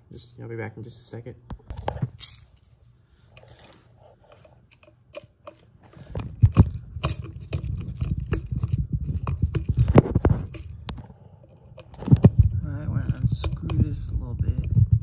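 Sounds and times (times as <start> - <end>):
screwdriver clicks and scrapes: 3.3 - 14.8
low rubbing rumble: 6.0 - 15.0.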